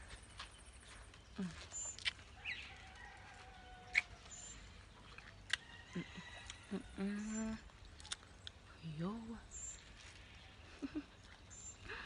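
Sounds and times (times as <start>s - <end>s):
wet eating sounds: 0.3s - 8.8s, 9.5s - 12.0s
lip clicks: 1.8s - 2.2s, 3.9s - 4.2s, 7.9s - 8.6s.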